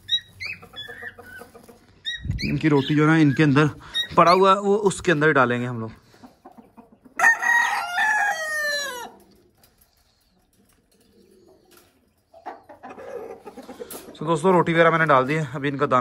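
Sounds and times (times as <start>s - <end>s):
rooster crowing: 7.2s - 9.2s.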